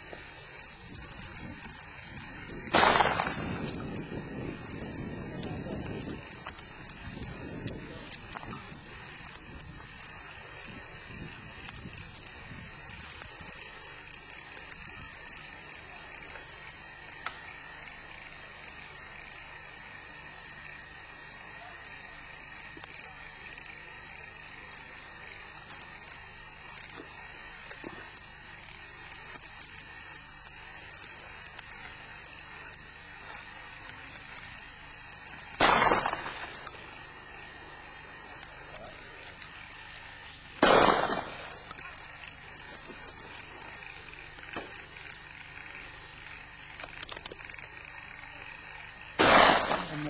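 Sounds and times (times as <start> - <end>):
insects chirring: 0.0 - 50.0
shotgun shot echoing: 2.7 - 3.8, 35.6 - 36.7, 40.6 - 41.6, 49.2 - 50.0.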